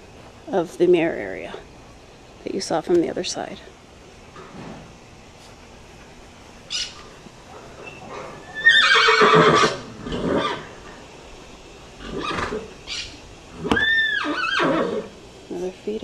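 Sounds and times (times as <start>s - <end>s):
horse whinnying: 8.4s - 10.7s, 12.0s - 15.1s.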